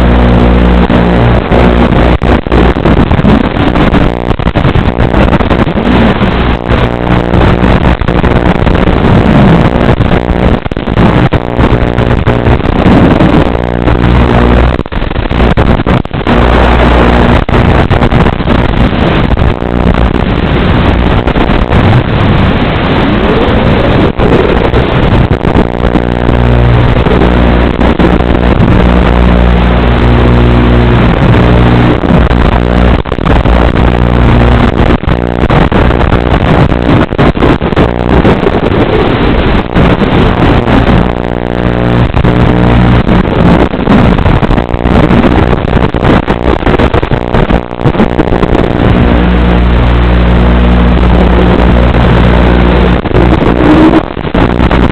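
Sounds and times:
drone motors buzzing whine: 0.0 - 37.0.

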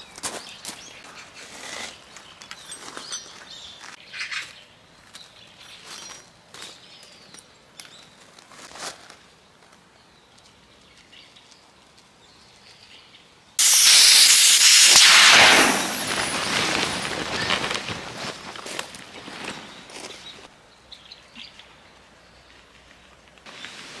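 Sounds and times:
air hissing out of valve: 13.6 - 16.9.

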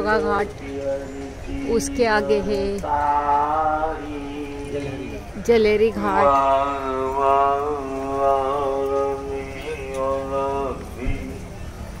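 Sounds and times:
person singing a long note: 0.6 - 5.2.

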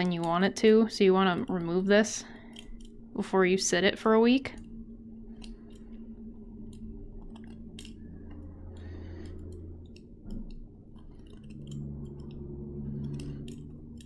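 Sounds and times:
steady low hum: 0.0 - 14.0
metal tool clicking and scratching: 2.4 - 3.0, 6.6 - 14.0.

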